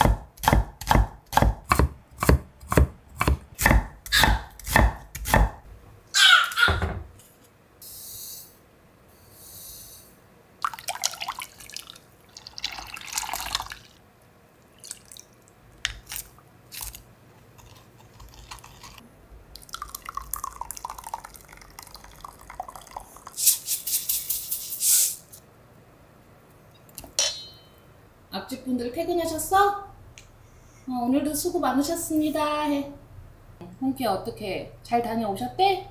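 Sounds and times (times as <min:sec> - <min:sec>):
liquid pouring and splashing: 0:10.6 - 0:14.0, 0:14.6 - 0:15.6, 0:19.6 - 0:23.4.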